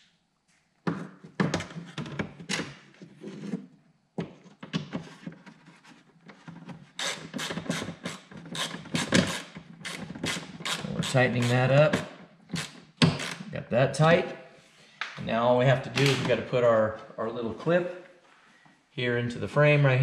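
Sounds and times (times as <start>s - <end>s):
ratchet clicking: 7.0s - 11.6s.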